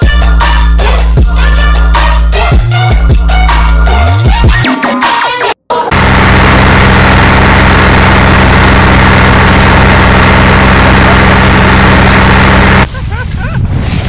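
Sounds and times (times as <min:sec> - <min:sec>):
engine idling: 0:05.9 - 0:12.8.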